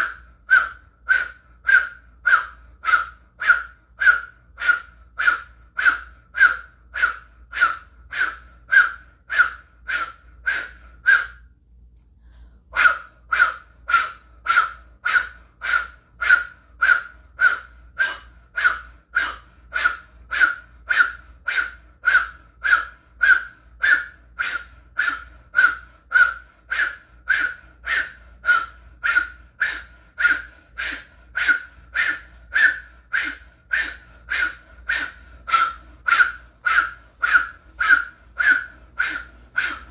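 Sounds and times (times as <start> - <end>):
rhythmic forceful exhalations: 12.3 - 39.9.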